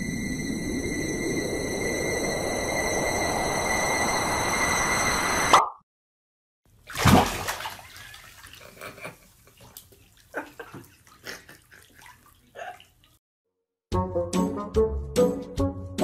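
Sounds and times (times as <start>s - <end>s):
water splashing in a bathtub: 6.7s - 13.2s
water dripping: 7.0s - 13.2s.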